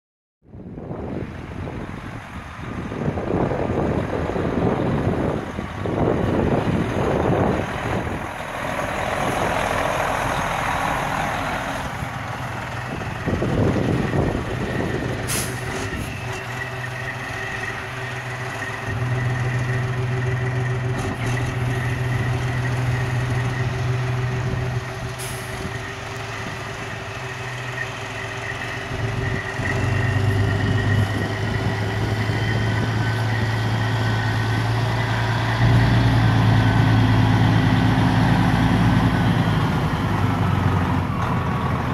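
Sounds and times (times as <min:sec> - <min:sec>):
wind buffeting microphone: 0:00.5 - 0:16.3, 0:28.8 - 0:38.5
diesel truck engine running: 0:00.5 - 0:41.9
short sharp hisses: 0:15.3 - 0:15.7.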